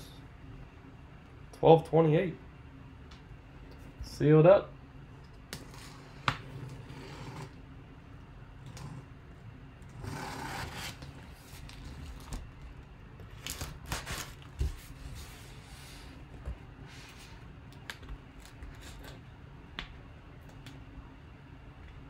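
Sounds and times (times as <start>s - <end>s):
tape tearing: 13.3s - 14.5s.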